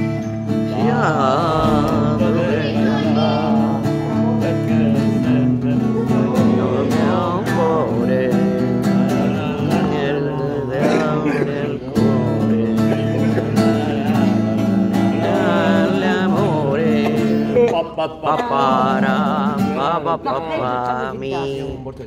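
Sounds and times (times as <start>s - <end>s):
acoustic guitar strumming: 0.0s - 21.7s
man singing: 0.0s - 22.0s.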